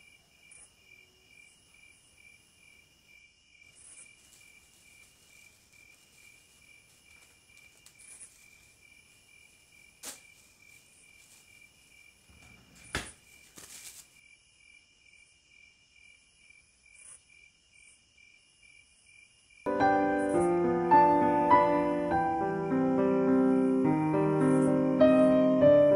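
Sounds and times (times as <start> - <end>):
cricket chirping: 0.0 - 25.9
rustle: 1.5 - 14.3.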